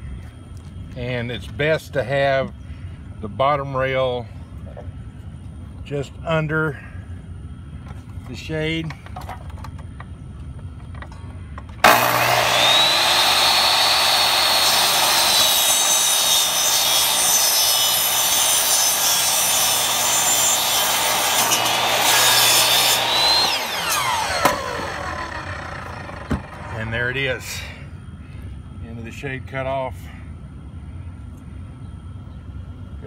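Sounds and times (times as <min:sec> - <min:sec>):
saw blade cutting fabric and tube: 0:11.8 - 0:25.0
mitre saw motor whine: 0:11.8 - 0:27.3.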